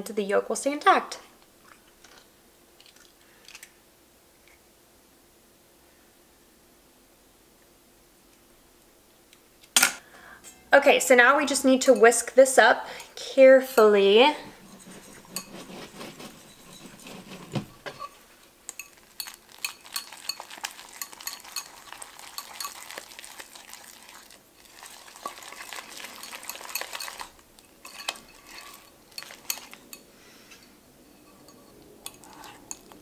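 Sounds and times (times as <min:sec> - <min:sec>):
whisk clicking in glass bowl: 0:14.6 - 0:17.6, 0:18.7 - 0:23.0.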